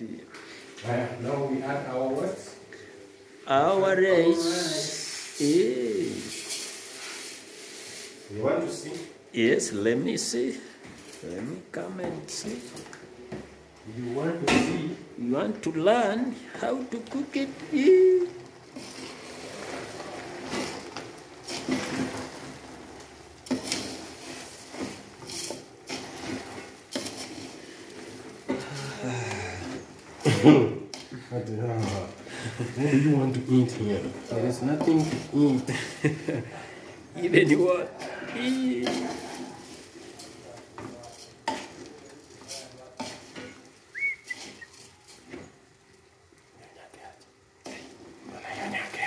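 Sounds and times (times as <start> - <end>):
wooden spoon stirring rice in pot: 16.6 - 49.0.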